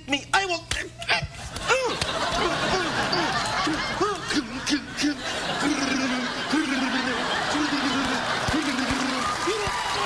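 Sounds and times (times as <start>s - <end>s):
person laughing: 1.0s - 9.8s
audience laughing: 1.4s - 10.0s.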